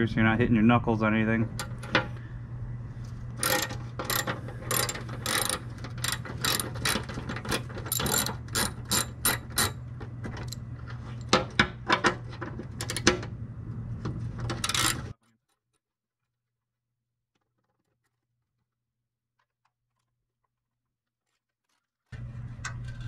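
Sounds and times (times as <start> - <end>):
hand ratchet clicking: 3.4 - 9.8, 14.6 - 15.0.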